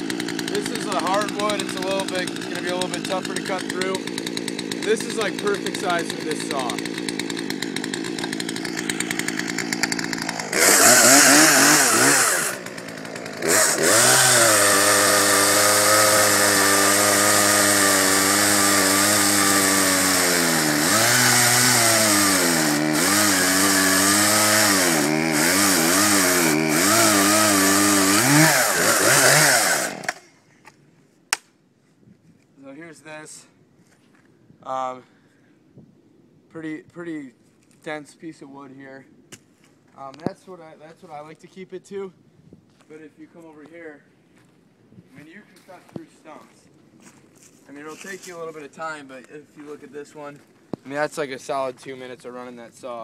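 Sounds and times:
chainsaw cutting log: 0:00.0 - 0:30.3.

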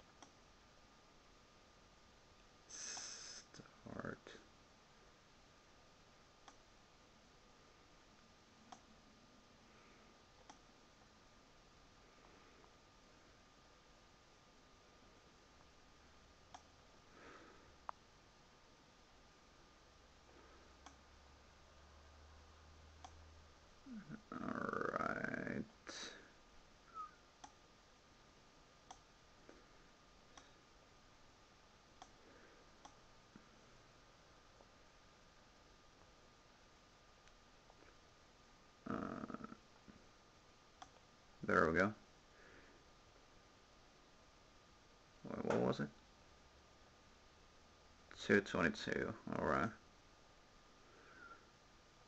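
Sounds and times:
computer mouse clicks: 0:00.0 - 0:00.4, 0:06.4 - 0:06.6, 0:08.7 - 0:08.9, 0:10.4 - 0:10.7, 0:16.5 - 0:16.7, 0:23.0 - 0:23.2, 0:27.4 - 0:27.6, 0:28.8 - 0:29.1, 0:32.0 - 0:32.2, 0:32.8 - 0:33.0
faint steady hiss: 0:00.0 - 0:52.0
faint steady high tone: 0:23.8 - 0:27.3, 0:51.0 - 0:51.5.

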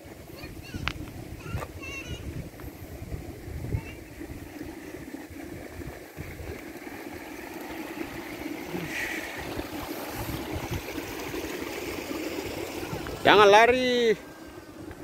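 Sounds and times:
wind buffeting microphone: 0:00.3 - 0:08.4, 0:09.3 - 0:11.6.

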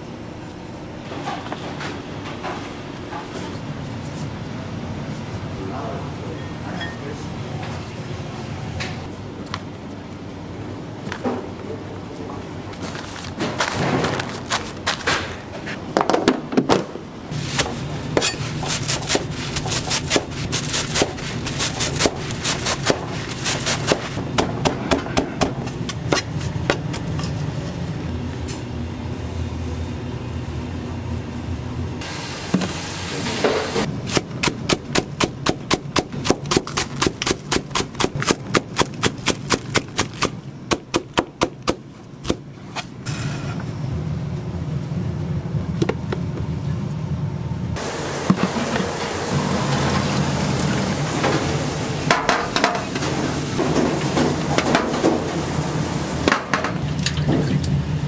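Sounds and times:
steady low hum: 0:00.0 - 0:49.6.

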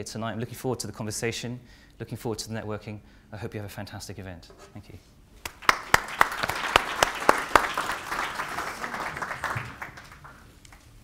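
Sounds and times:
sharp nearby claps: 0:05.4 - 0:10.9
audience applauding: 0:05.4 - 0:11.0.

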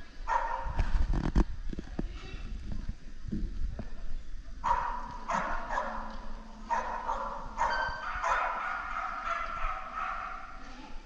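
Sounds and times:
dog barking with echo: 0:00.3 - 0:00.7, 0:04.6 - 0:06.1, 0:06.7 - 0:10.6.

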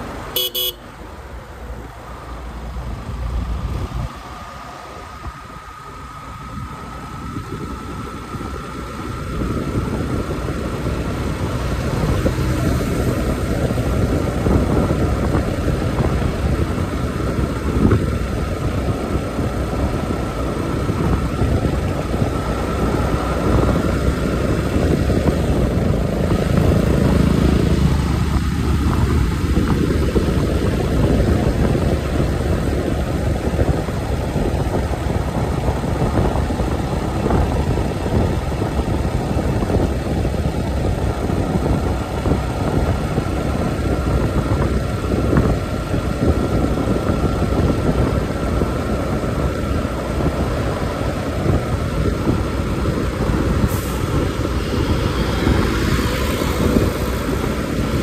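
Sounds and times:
thin steady whine: 0:00.0 - 0:11.6
motorcycle engine cruising: 0:00.0 - 0:58.0
wind rushing over microphone: 0:00.0 - 0:58.0.

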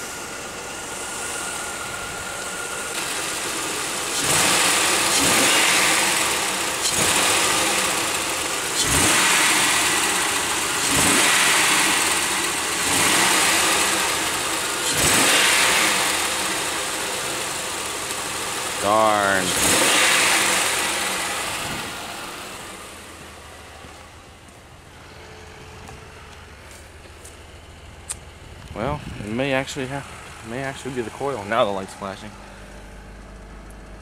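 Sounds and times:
misfiring car engine revving: 0:00.0 - 0:24.8.

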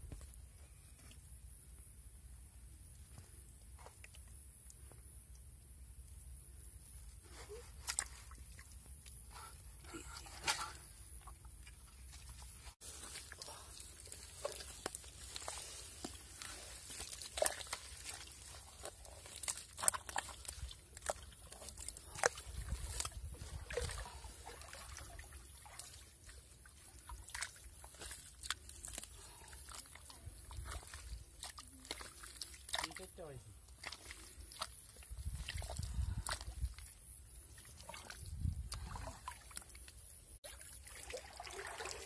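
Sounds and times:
hand squelching in wet mud: 0:07.1 - 0:42.0
water splashes: 0:11.2 - 0:42.0.

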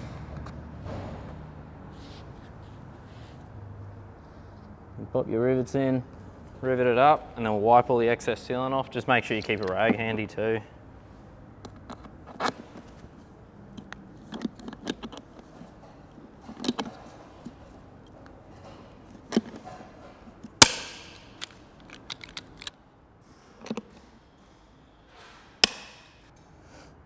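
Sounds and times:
rivet tool clicks and rattles: 0:20.4 - 0:22.8.

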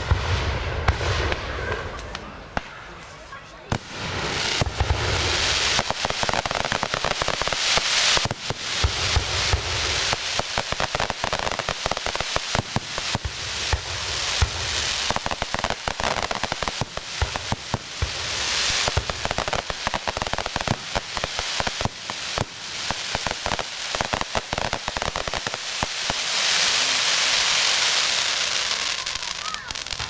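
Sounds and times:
fireworks booms: 0:00.0 - 0:30.0
fireworks crackling: 0:00.0 - 0:30.0.

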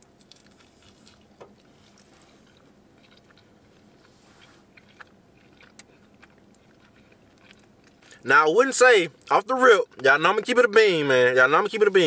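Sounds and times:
man chewing pizza: 0:00.0 - 0:12.0
mouth clicks and wet smacks: 0:04.8 - 0:08.2.

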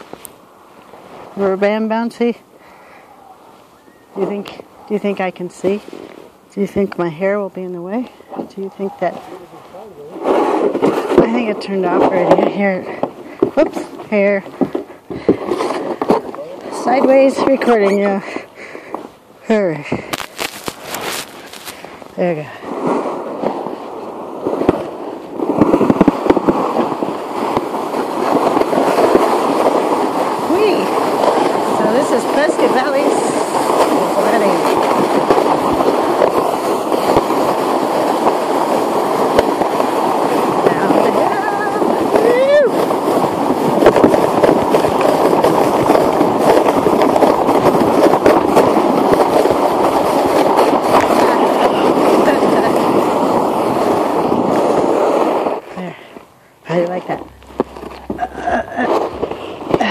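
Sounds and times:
sled scraping over snow: 0:00.0 - 0:59.9
wind on microphone: 0:19.8 - 0:55.7, 0:56.7 - 0:59.9.

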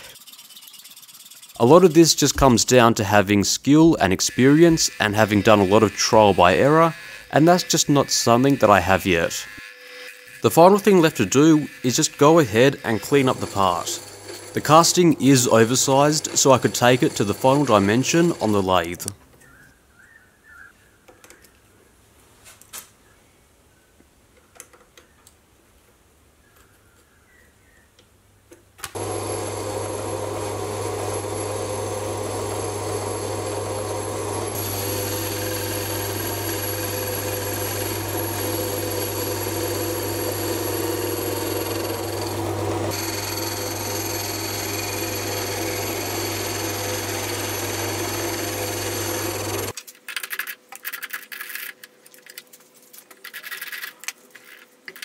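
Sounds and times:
metal lathe humming and whining: 0:04.3 - 0:18.7, 0:29.0 - 0:49.7.

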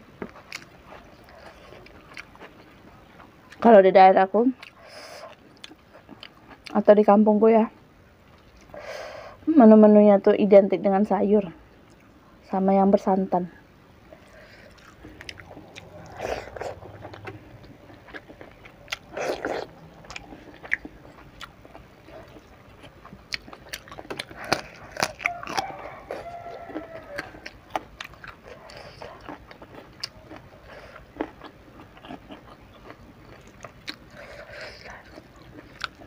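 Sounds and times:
person chewing food: 0:00.2 - 0:03.7, 0:04.6 - 0:06.8, 0:14.0 - 0:36.0.

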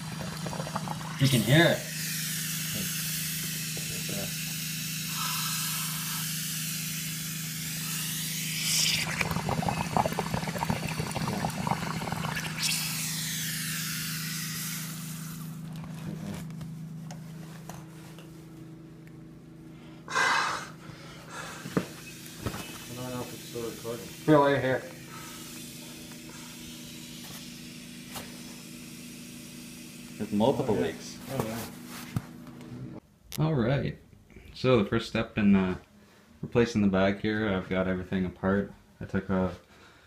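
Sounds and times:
air hissing and bubbling underwater: 0:00.0 - 0:15.6, 0:21.4 - 0:30.6.

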